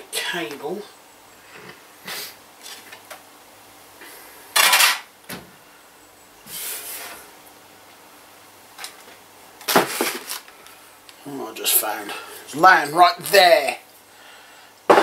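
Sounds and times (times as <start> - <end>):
objects rustling and clattering: 1.5 - 3.3, 8.7 - 10.8.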